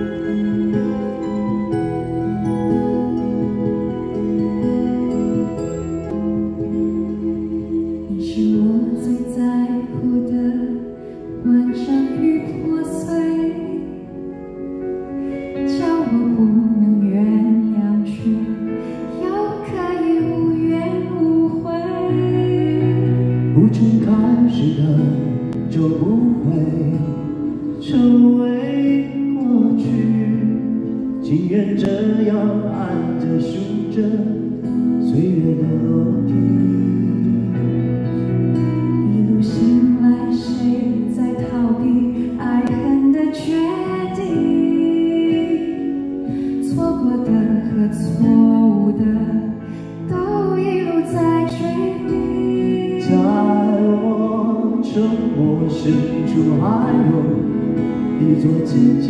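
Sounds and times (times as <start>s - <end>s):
soft instrumental accompaniment: 0.0s - 59.0s
person singing: 15.3s - 59.0s.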